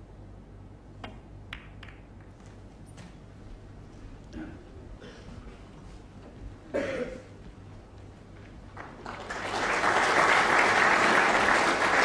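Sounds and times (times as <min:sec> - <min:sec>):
audience applauding: 0:08.7 - 0:12.0.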